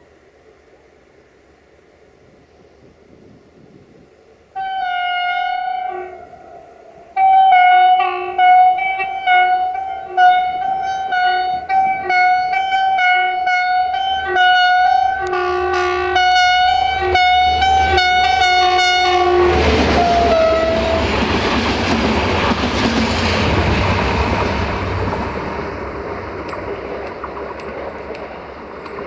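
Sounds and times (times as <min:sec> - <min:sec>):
passing train engine and wheels: 0:00.0 - 0:29.0
locomotive air horn toots: 0:04.6 - 0:21.2.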